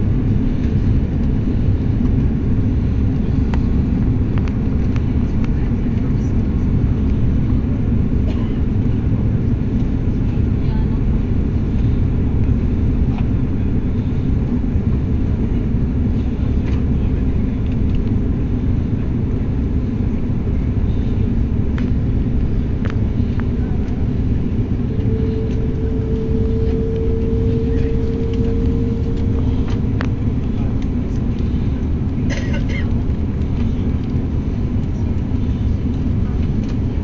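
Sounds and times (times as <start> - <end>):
airliner cabin rumble: 0.0 - 37.0
thin steady tone: 24.8 - 30.4.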